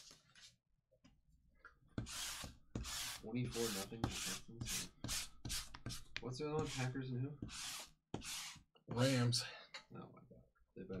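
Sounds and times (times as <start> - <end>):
lint roller rasping on mat: 6.6 - 8.6.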